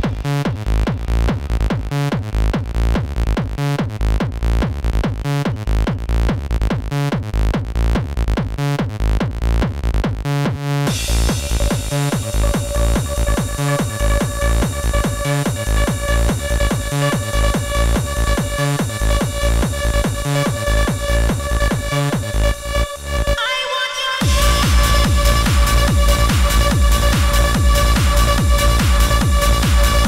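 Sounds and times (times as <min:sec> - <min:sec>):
techno kick drum and bass: 0:00.0 - 0:23.6, 0:24.2 - 0:30.0
hi-hats: 0:10.8 - 0:23.4, 0:24.2 - 0:30.0.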